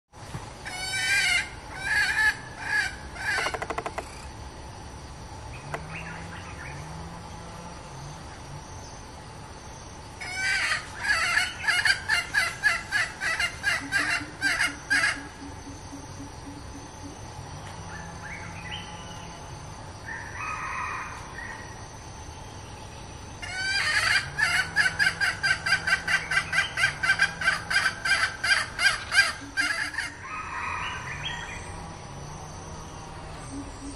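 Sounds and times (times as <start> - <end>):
hen clucking: 10.3 - 17.2.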